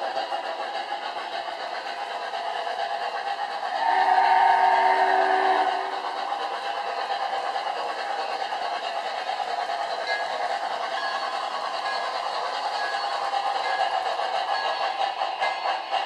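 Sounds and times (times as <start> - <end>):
model train rolling: 0.0 - 16.0
model train horn chord: 3.7 - 6.4.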